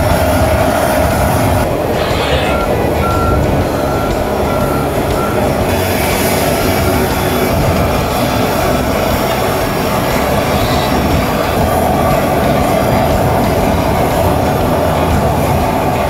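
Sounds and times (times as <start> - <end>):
jet engines running: 0.0 - 16.0.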